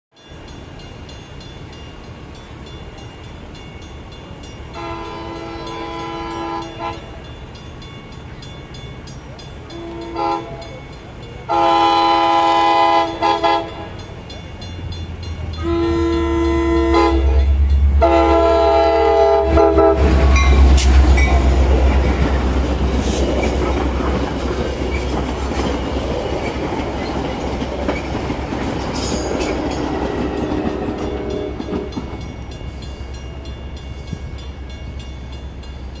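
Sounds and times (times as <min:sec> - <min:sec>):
train air horn blasts: 0:04.8 - 0:07.2, 0:09.7 - 0:10.7, 0:11.5 - 0:14.0, 0:15.6 - 0:21.4, 0:29.9 - 0:32.0
train wheels clicking over rails: 0:19.4 - 0:33.4.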